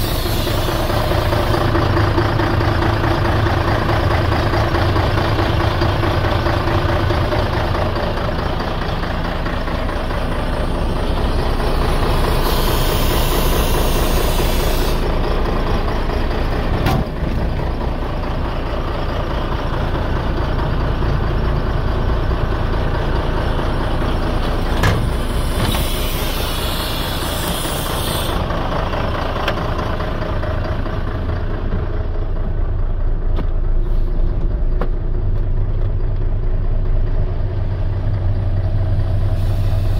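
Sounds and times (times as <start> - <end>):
hiss: 0.0 - 1.7, 12.1 - 15.2, 25.0 - 28.6, 39.1 - 39.9
diesel engine idling: 0.0 - 39.9.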